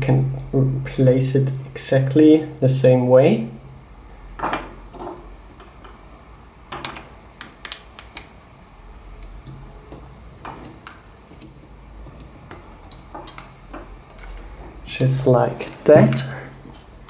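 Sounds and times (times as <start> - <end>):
steady low hum: 0.0 - 17.0
small clicks and taps: 7.4 - 8.3.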